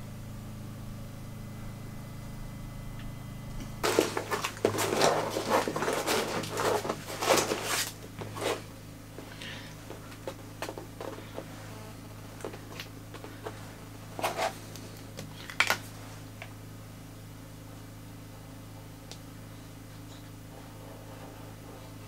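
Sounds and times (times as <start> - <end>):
steady low hum: 0.0 - 22.0
plastic foil crackling: 3.8 - 8.7, 15.3 - 16.0.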